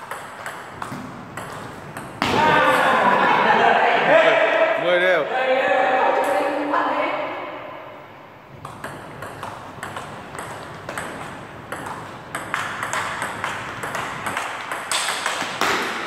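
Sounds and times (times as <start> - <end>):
table tennis ball clicking: 0.0 - 2.2, 8.6 - 15.9.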